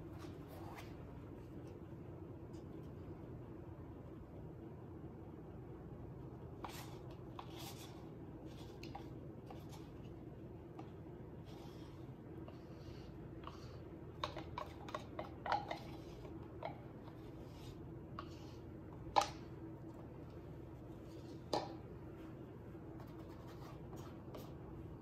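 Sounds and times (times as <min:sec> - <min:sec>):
faint hum: 0:00.0 - 0:25.0
plastic cups clicking and tapping: 0:13.5 - 0:17.4, 0:19.0 - 0:19.6.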